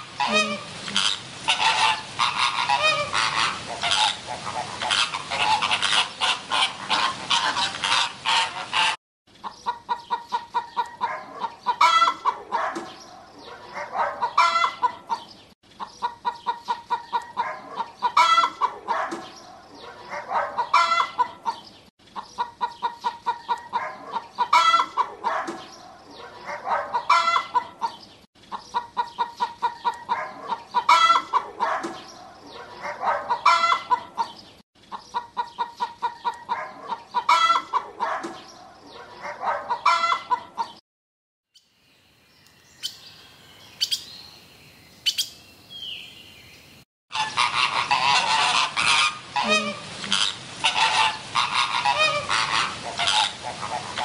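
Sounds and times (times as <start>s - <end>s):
rooster clucking: 0.0s - 12.8s, 13.5s - 19.2s, 19.8s - 21.6s, 22.2s - 25.6s, 26.3s - 31.9s, 32.6s - 38.3s, 39.0s - 40.8s, 47.1s - 54.0s.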